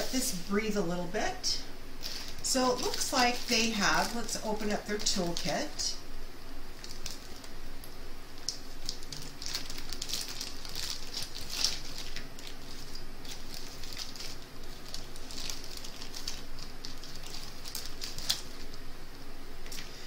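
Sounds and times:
plastic bag crinkling: 2.0s - 6.0s, 6.7s - 7.6s, 8.3s - 18.8s.

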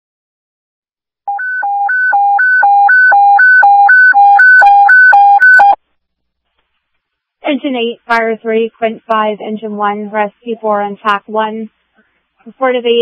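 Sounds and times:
alternating two-tone alert over radio: 1.3s - 5.8s.

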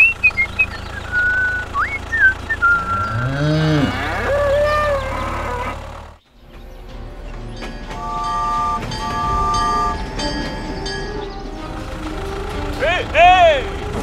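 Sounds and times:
high whistled chirps: 0.0s - 5.5s, 7.5s - 11.7s
low engine-like hum: 0.0s - 14.0s
cattle mooing: 2.6s - 6.2s, 8.0s - 10.3s.

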